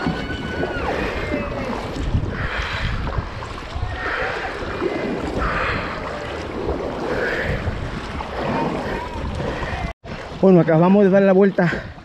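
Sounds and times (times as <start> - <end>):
wind rumble on microphone: 0.0 - 10.4
paddle splashing in water: 0.0 - 12.0.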